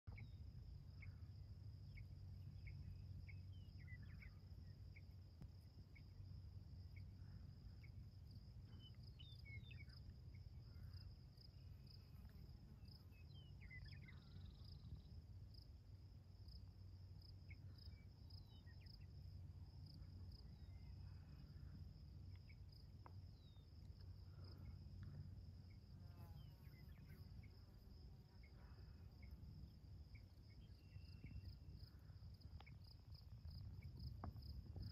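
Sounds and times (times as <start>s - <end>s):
insects chirping: 0.1s - 34.9s
bird chirps: 8.7s - 10.0s.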